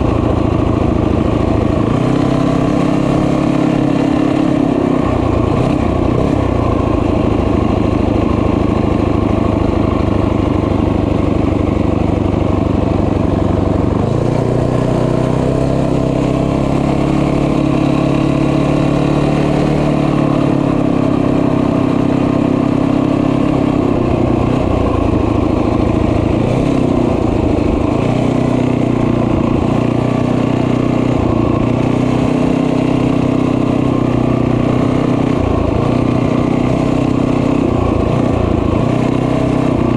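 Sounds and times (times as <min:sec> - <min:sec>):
small motorbike engine running: 0:00.0 - 0:39.9.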